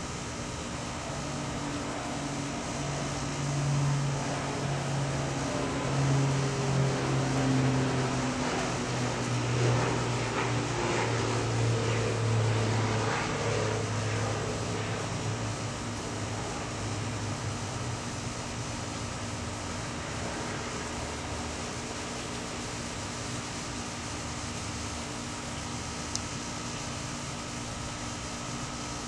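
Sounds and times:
motor droning: 0:00.0 - 0:29.0.

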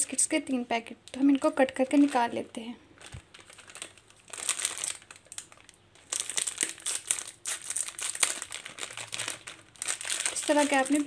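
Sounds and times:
plastic packets crinkling: 0:01.1 - 0:02.4, 0:03.0 - 0:11.0.

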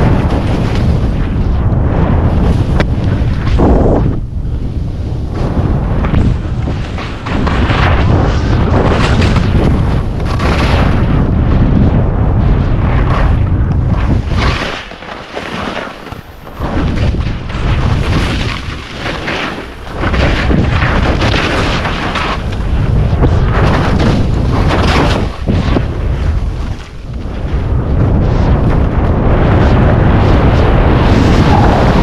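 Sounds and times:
skis scraping through snow: 0:00.0 - 0:11.1, 0:12.9 - 0:27.3
wind buffeting microphone: 0:00.0 - 0:32.0.

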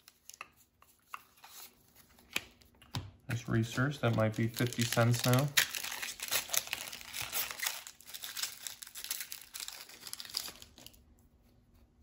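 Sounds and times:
foil wrapper crinkling and tearing: 0:04.0 - 0:11.0.

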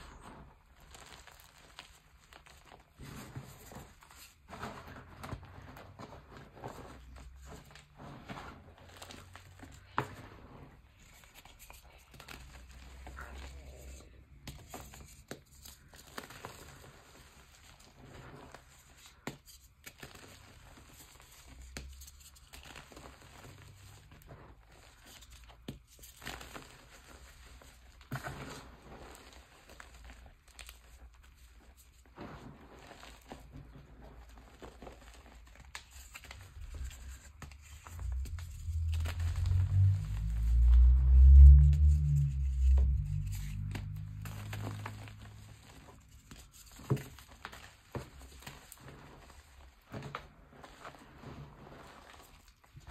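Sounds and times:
hands crushing chalk: 0:08.5 - 0:40.5, 0:42.8 - 0:51.1
deep rumble: 0:36.4 - 0:46.2.

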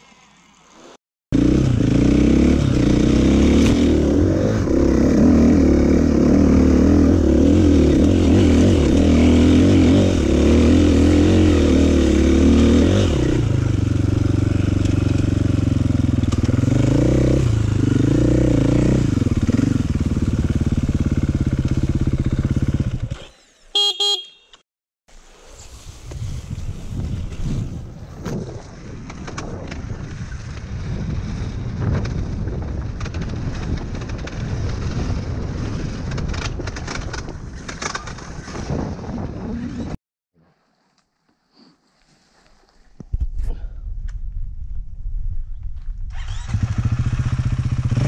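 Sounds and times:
dirt bike engine revving: 0:01.4 - 0:24.4, 0:46.2 - 0:48.0.

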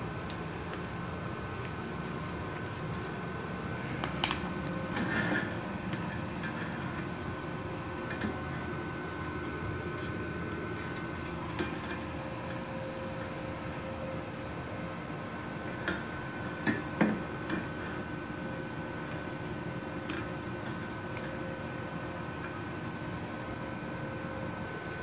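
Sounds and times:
welder humming: 0:00.0 - 0:25.0.

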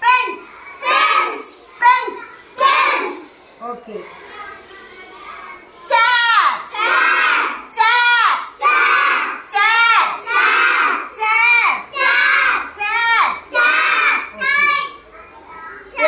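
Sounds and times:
children chanting in unison: 0:00.0 - 0:03.4, 0:06.6 - 0:15.0.

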